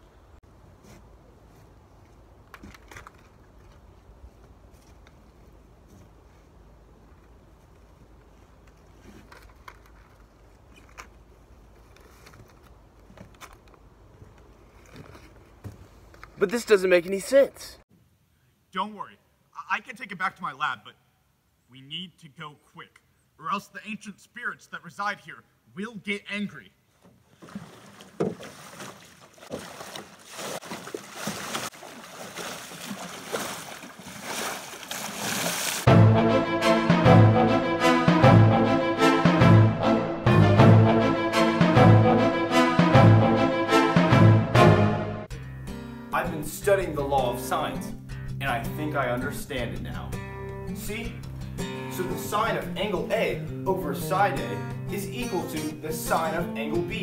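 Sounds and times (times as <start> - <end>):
light rustles: 0.8 - 16.4
paddle splashing water: 26.9 - 35.9.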